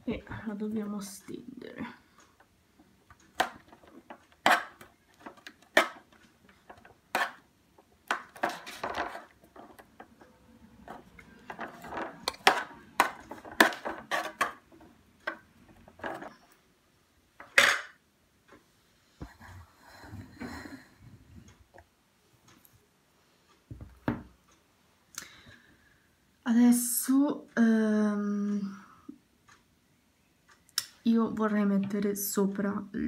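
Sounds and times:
metal spoon scraping a pan: 10.8s - 14.6s.

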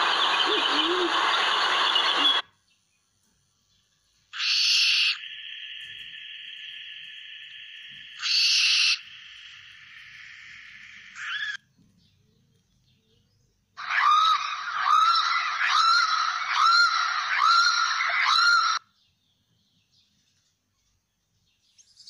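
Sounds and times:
steady hiss: 4.2s - 11.3s
owl screeching: 4.3s - 6.5s, 8.0s - 11.6s, 13.8s - 18.8s.

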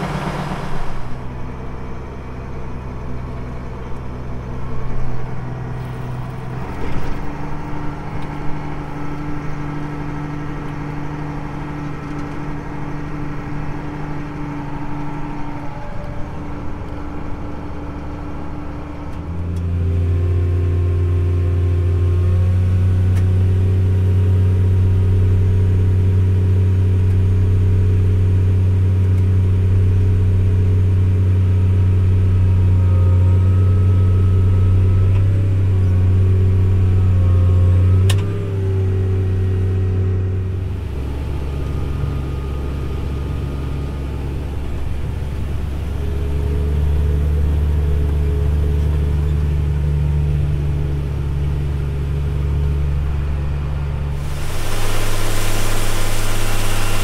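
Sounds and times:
diesel engine running: 0.0s - 57.0s
auger pouring corn: 54.2s - 57.0s.

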